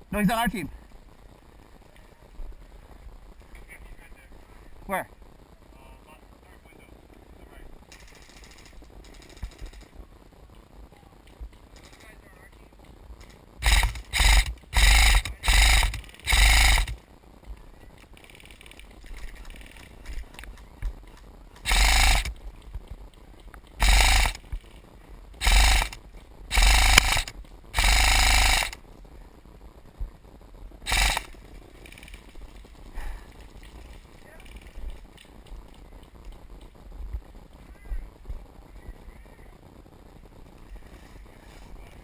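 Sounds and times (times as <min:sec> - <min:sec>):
airsoft rifle full-auto bursts: 0:07.9 - 0:09.9, 0:13.6 - 0:17.0, 0:21.6 - 0:22.4, 0:23.8 - 0:24.5, 0:25.4 - 0:28.8, 0:30.9 - 0:32.3.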